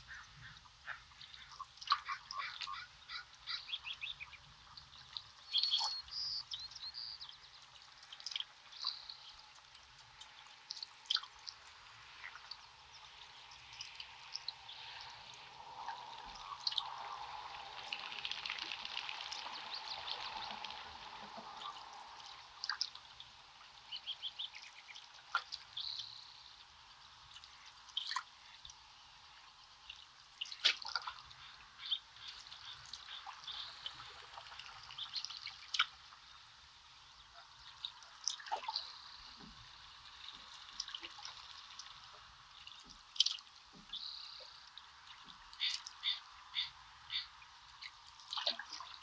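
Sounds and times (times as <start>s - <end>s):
water dripping and splashing: 0.0s - 49.0s
bird chirps: 5.4s - 7.6s, 45.6s - 47.4s.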